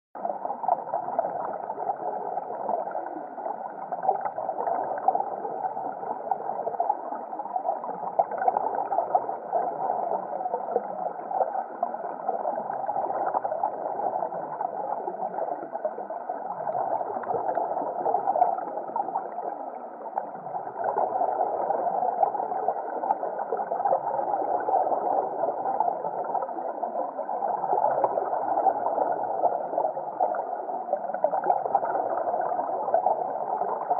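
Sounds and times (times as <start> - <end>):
fine underwater crackling: 0.1 - 33.9
muffled underwater rush: 0.2 - 33.9.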